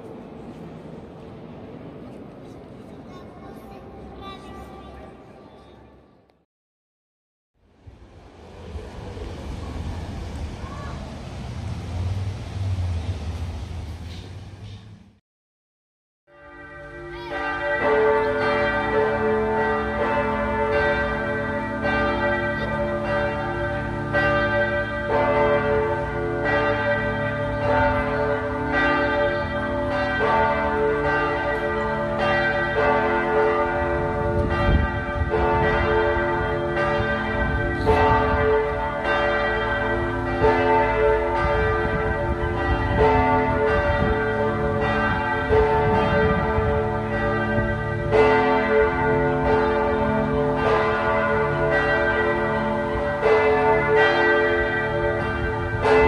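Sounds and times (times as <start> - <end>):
church bells pealing: 16.3 - 56.0.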